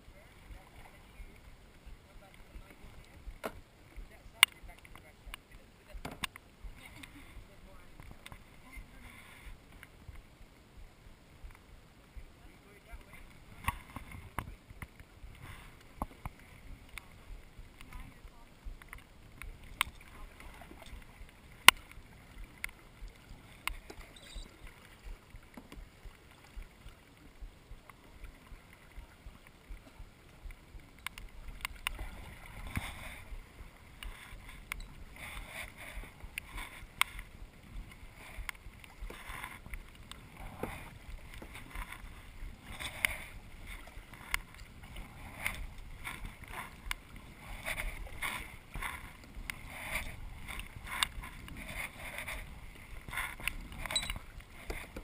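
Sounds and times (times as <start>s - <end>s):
paddle splashing in water: 12.0s - 55.0s.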